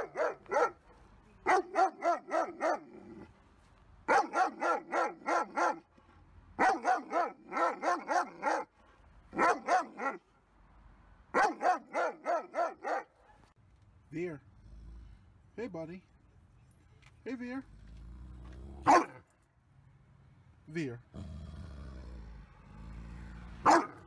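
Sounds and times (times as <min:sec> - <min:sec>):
dog barking in rapid volleys: 0:00.0 - 0:03.2, 0:04.1 - 0:05.9, 0:06.6 - 0:08.7, 0:09.3 - 0:10.3, 0:11.3 - 0:13.5, 0:18.8 - 0:19.2, 0:23.6 - 0:24.0.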